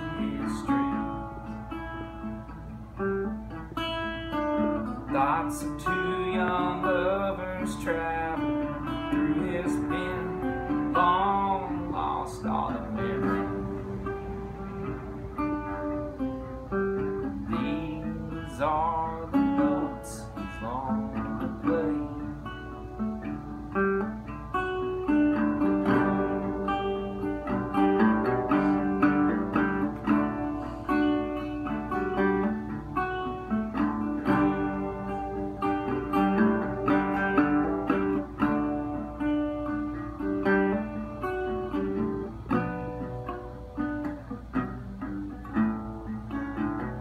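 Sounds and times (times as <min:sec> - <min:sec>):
resonator guitar playing: 0:00.0 - 0:47.0.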